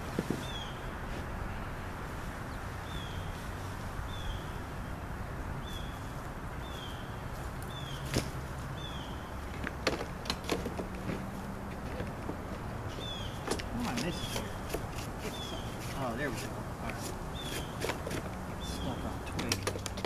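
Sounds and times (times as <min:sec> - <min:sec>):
plastic knocks and clatters: 0:09.5 - 0:12.6.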